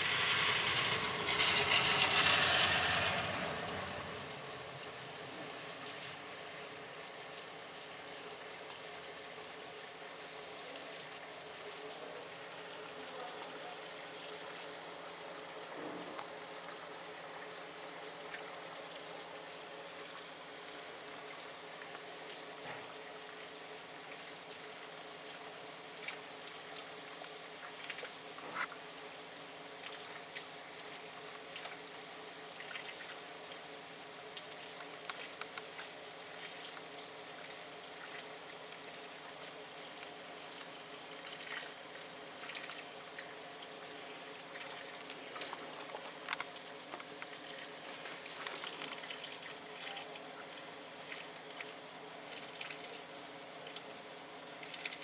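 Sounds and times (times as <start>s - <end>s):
water running and splashing: 0.0s - 8.0s, 23.4s - 55.0s
sharp drips close by: 0.0s - 55.0s
steady rain: 0.0s - 55.0s.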